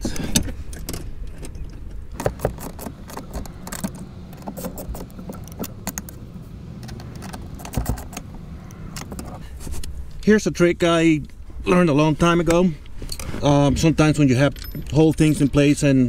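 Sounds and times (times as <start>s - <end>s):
steady low hum: 0.0s - 16.0s
wrench and socket clinking: 14.2s - 15.8s.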